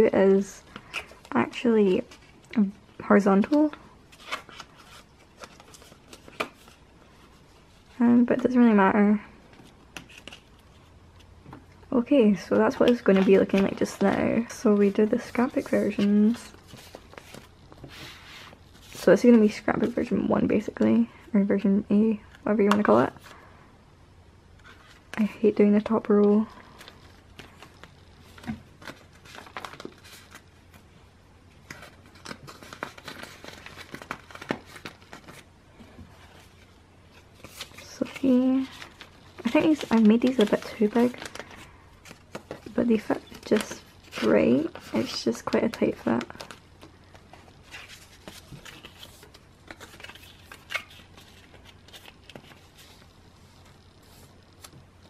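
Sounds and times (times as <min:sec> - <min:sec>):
plastic sleeve pages crinkling: 0:00.7 - 0:07.7, 0:09.5 - 0:11.3, 0:12.4 - 0:20.6, 0:24.6 - 0:30.9, 0:31.5 - 0:35.5, 0:36.1 - 0:55.0.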